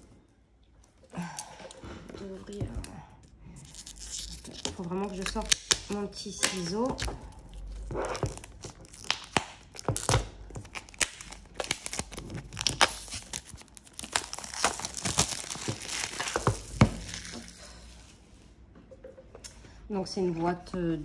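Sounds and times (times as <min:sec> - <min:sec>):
cellophane wrap tearing and crinkling: 0:03.6 - 0:18.1.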